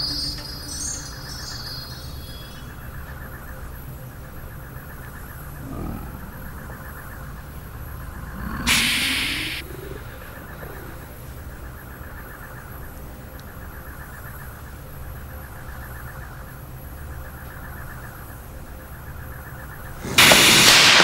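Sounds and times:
robotic arm humming: 4.7s - 12.5s
loud blast of noise: 8.4s - 9.6s, 20.0s - 21.0s.

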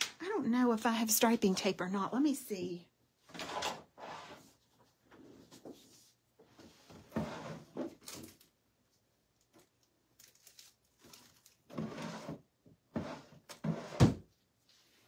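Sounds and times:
small objects knocked and shuffled: 9.4s - 11.9s.

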